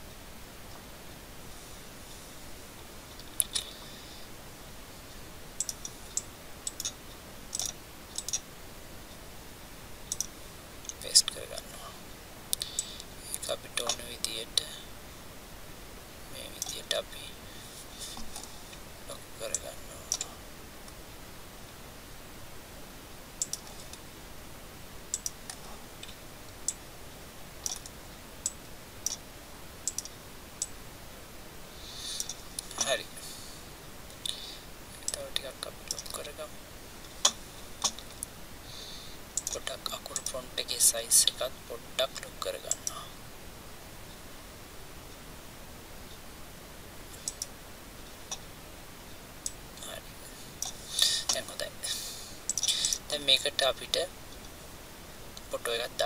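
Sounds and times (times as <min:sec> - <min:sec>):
computer mouse buttons clicking: 0:05.6 - 0:08.4, 0:10.1 - 0:10.3, 0:23.4 - 0:23.7, 0:25.1 - 0:25.4, 0:29.9 - 0:30.2, 0:39.4 - 0:39.6, 0:47.2 - 0:47.5, 0:52.5 - 0:53.0.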